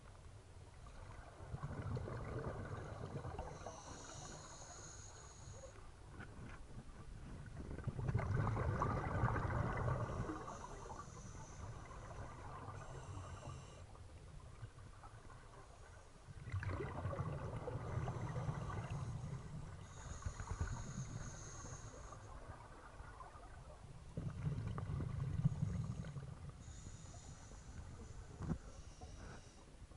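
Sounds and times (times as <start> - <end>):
regulator bubbling underwater: 1.2 - 3.9, 7.5 - 13.7, 16.3 - 21.3
diver inhaling: 3.5 - 5.8, 17.9 - 22.3, 25.5 - 29.7.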